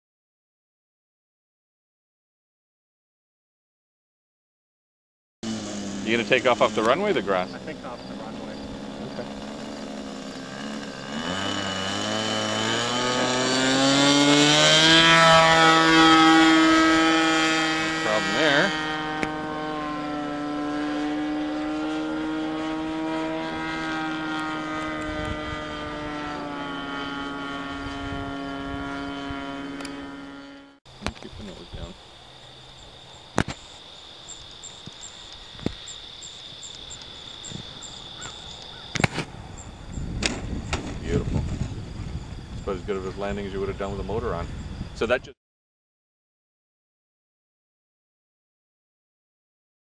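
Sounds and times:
model airplane engine droning: 0:05.4 - 0:45.2
sharp clicks or knocks: 0:40.2 - 0:41.0.

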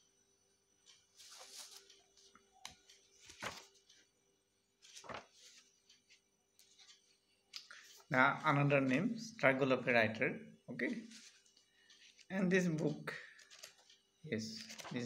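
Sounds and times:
book pages turning: 0:00.9 - 0:04.1, 0:04.8 - 0:08.1, 0:11.1 - 0:12.3, 0:13.3 - 0:15.0.

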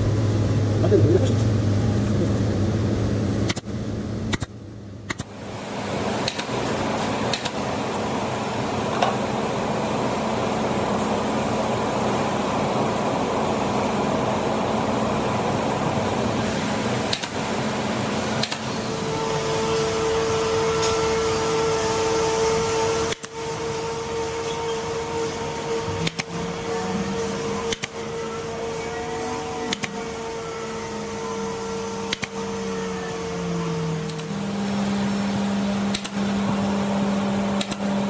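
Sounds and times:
machinery noise: 0:00.0 - 0:03.5, 0:05.2 - 0:38.0
pneumatic hand tool whining: 0:18.4 - 0:36.7.

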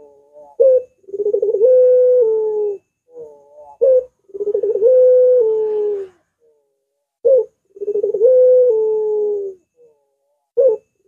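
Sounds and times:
dove cooing: 0:00.0 - 0:11.0.

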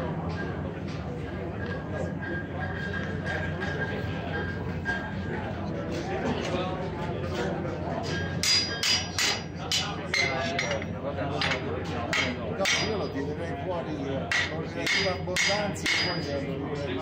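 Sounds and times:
hammers striking iron on anvil: 0:08.0 - 0:13.2, 0:14.3 - 0:16.4.

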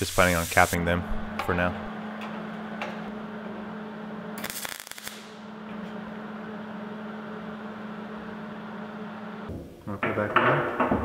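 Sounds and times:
welding arc crackling: 0:00.0 - 0:00.8, 0:04.4 - 0:05.5.

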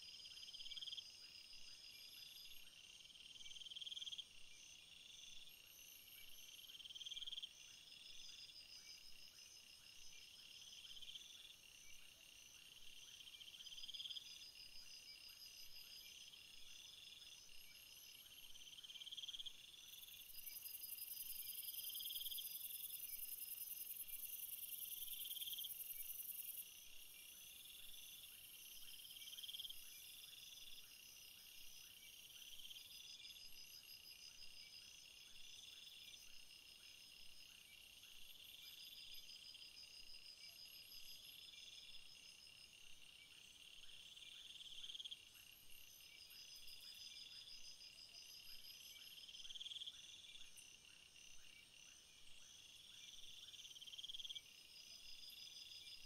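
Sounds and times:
crickets chirping: 0:00.0 - 0:56.0
high steady insect buzz: 0:00.0 - 0:56.0.

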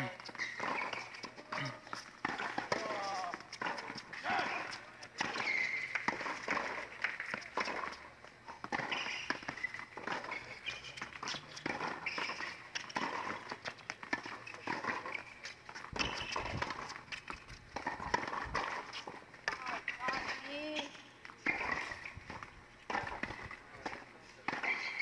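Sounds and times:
racket striking tennis ball: 0:00.2 - 0:07.9, 0:21.4 - 0:25.0.

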